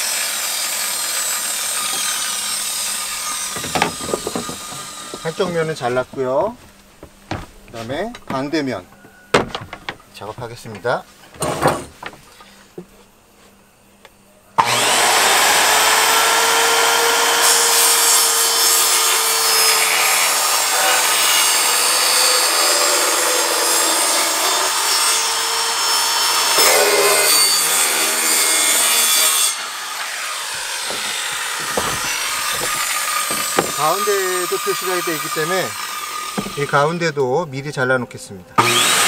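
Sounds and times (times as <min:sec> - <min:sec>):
circular saw cutting wood: 0:00.0 - 0:06.6, 0:14.6 - 0:37.2, 0:38.6 - 0:39.0.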